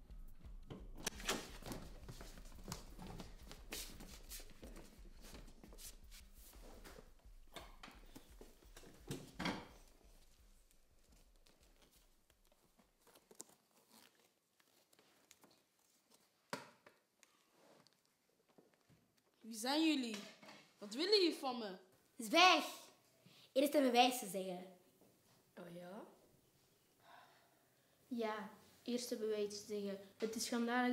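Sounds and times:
rustling of clothes and hands: 0:00.4 - 0:21.3
tape ripping: 0:11.4 - 0:16.3.

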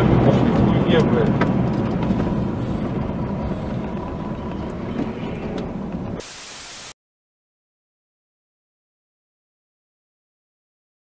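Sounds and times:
truck engine and road rumble: 0:00.0 - 0:06.9
loud static hiss: 0:06.2 - 0:07.0.

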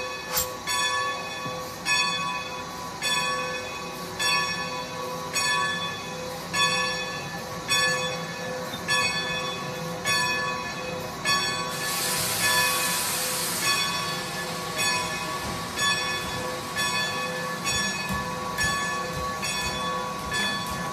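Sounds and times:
locomotive bell clanging: 0:00.0 - 0:13.0, 0:13.6 - 0:20.9
loud steam hiss: 0:11.4 - 0:19.2.

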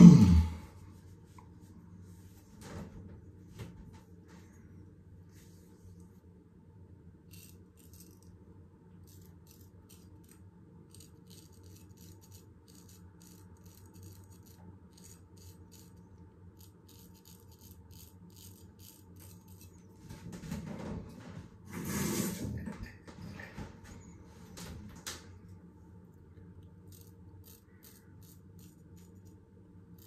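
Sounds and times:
razor scraping stubble: 0:07.3 - 0:08.4, 0:09.0 - 0:20.0, 0:26.8 - 0:30.0.

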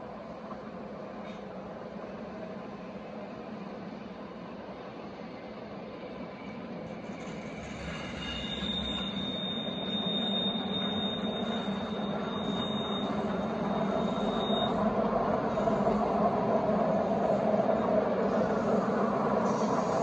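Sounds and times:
train passing rumble: 0:00.0 - 0:20.0
high wheel squeal: 0:07.1 - 0:16.0.

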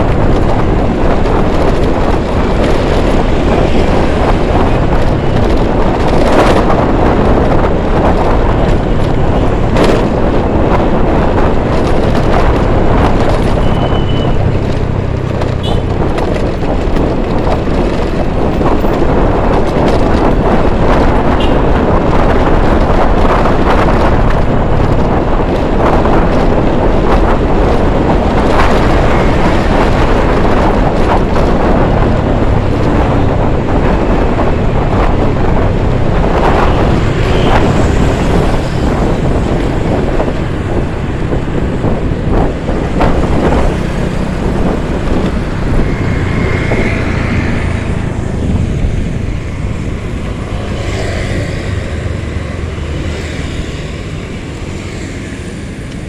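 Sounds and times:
passing traffic: 0:00.0 - 0:56.0
wind rushing over microphone: 0:00.0 - 0:56.0
scooter engine: 0:36.8 - 0:56.0.

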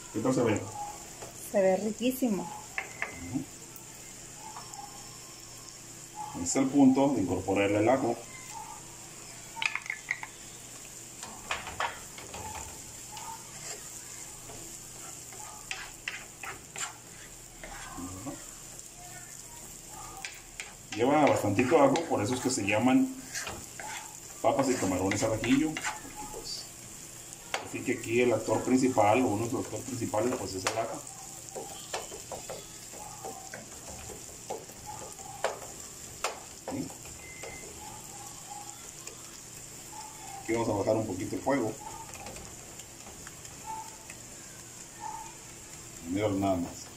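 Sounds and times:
garlic sizzling in oil: 0:00.0 - 0:46.9
wooden spoon scraping a pan: 0:11.8 - 0:18.4, 0:20.2 - 0:26.2.

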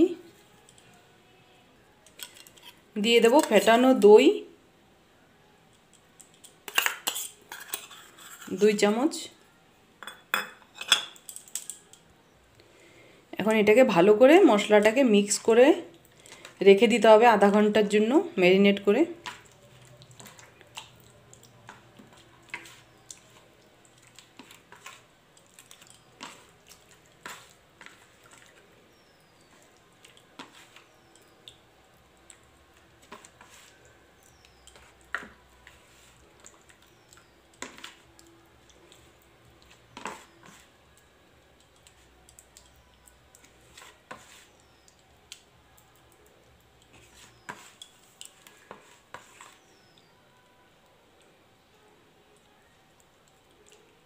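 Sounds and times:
wet hand mixing: 0:18.4 - 0:50.1, 0:52.4 - 0:54.0.

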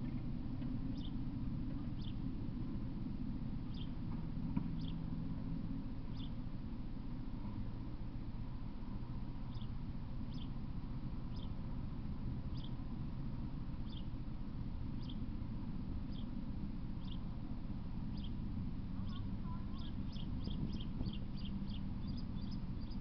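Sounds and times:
steady low rumble: 0:00.0 - 0:23.0
small animal chirping: 0:00.9 - 0:01.1, 0:02.0 - 0:02.2, 0:03.7 - 0:04.0, 0:04.8 - 0:05.0, 0:06.1 - 0:06.4, 0:10.3 - 0:10.6, 0:12.5 - 0:12.8, 0:13.8 - 0:14.1, 0:15.0 - 0:15.2, 0:17.0 - 0:17.2, 0:18.1 - 0:18.4, 0:19.0 - 0:23.0.

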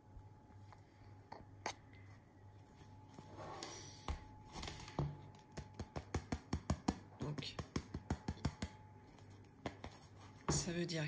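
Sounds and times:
fingers tapping bread crust: 0:05.3 - 0:10.2.

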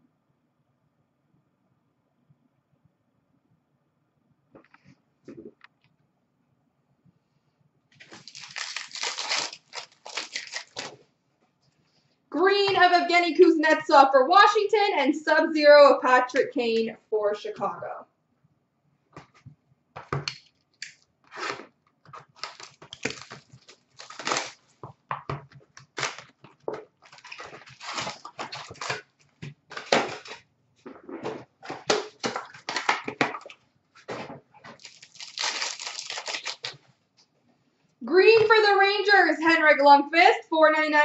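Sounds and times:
wrappers torn open and crinkling: 0:08.0 - 0:11.0, 0:20.3 - 0:24.8, 0:25.7 - 0:30.4, 0:31.7 - 0:33.6, 0:34.7 - 0:36.8
cards flicked and shuffled: 0:31.7 - 0:33.6.

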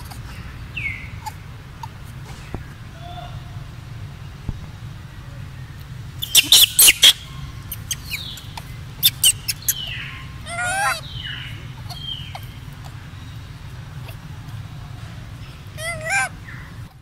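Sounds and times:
animal chirps: 0:06.2 - 0:12.6.

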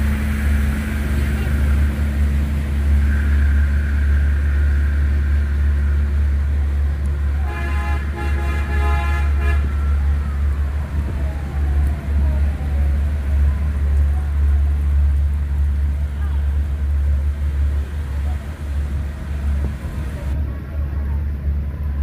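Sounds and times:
street traffic rumble: 0:00.0 - 0:22.0
car horn: 0:07.4 - 0:10.0.

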